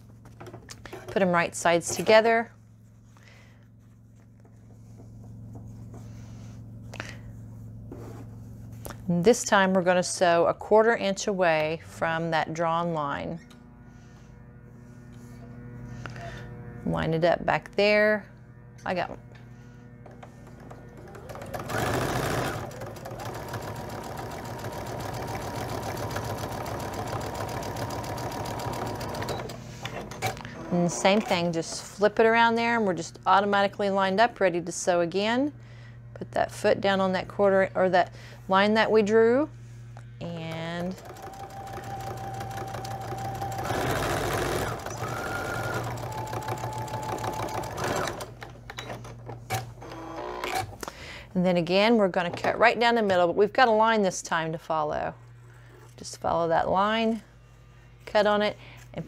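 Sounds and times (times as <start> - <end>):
sewing machine stitching: 20.1 - 31.7, 40.5 - 50.8.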